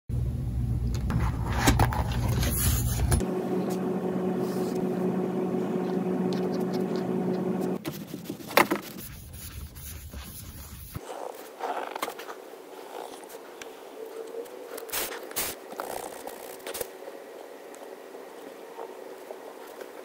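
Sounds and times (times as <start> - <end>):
steady low hum: 0.1 - 11.0
hands and pen handling notebook: 1.1 - 3.2, 7.8 - 17.0
cloth rubbing on paper: 6.4 - 12.0.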